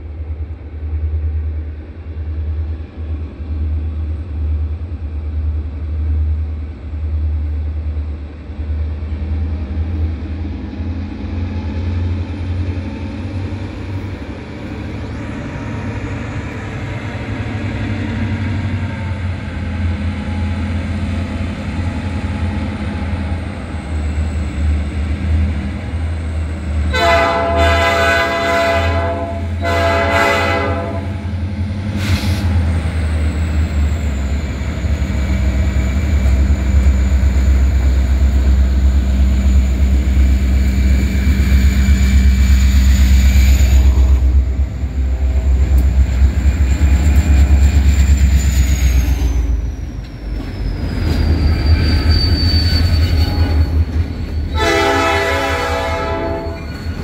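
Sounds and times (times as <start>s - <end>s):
diesel locomotive engines rumbling: 0.0s - 57.0s
locomotive air horn blasts: 26.9s - 31.2s, 54.5s - 56.7s.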